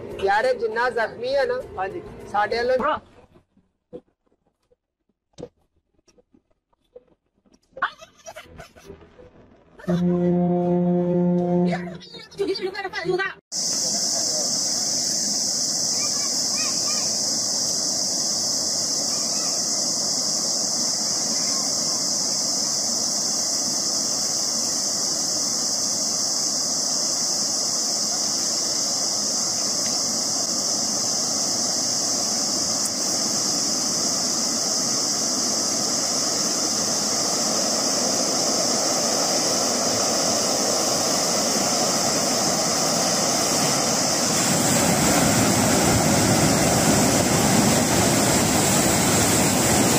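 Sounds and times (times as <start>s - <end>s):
high hiss: 13.5s - 49.9s
flash flood rushing rumble: 13.6s - 49.9s.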